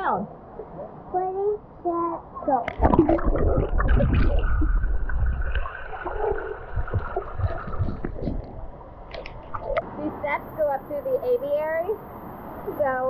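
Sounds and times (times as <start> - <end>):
underwater sloshing and bubbling: 2.2 - 10.0
soft gurgling and ticks: 2.6 - 9.9.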